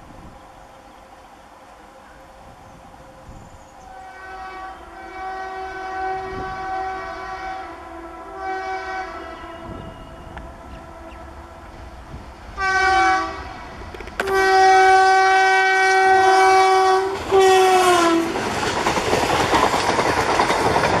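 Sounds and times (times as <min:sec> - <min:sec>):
locomotive horn blasts: 0:03.2 - 0:11.9, 0:12.6 - 0:18.3
train coaches clickety-clack: 0:08.9 - 0:12.9, 0:13.6 - 0:21.0.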